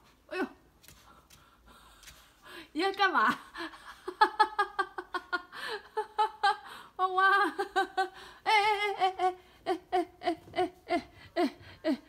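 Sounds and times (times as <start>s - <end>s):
woman giggling: 3.2s - 12.0s.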